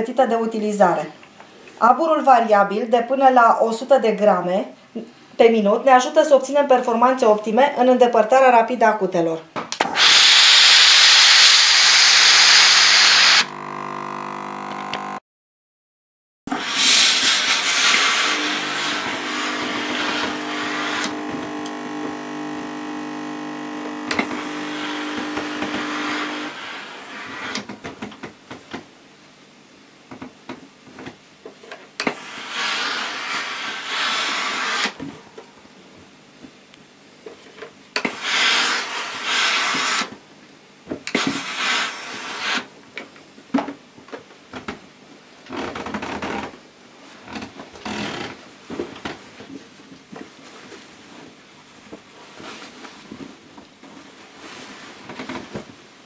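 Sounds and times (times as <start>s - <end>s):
steam hissing from iron: 9.9s - 13.4s, 16.5s - 21.1s, 24.2s - 27.6s, 32.0s - 34.9s, 38.0s - 40.1s, 41.1s - 42.6s
steam generator hum: 16.5s - 27.5s.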